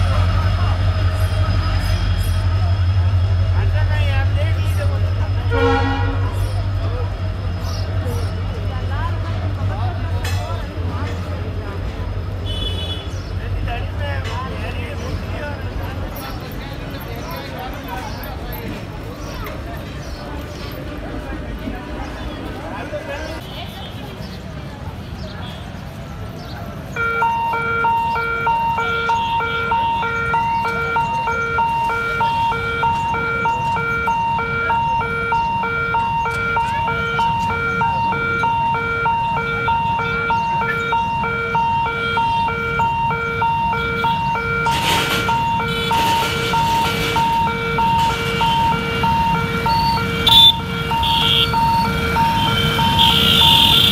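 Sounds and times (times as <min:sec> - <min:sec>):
motorcycle engines: 0:00.0 - 0:53.9
vehicle horn: 0:05.5 - 0:06.5, 0:12.4 - 0:13.2, 0:38.4 - 0:53.9
electronic warning beeps: 0:27.0 - 0:53.9.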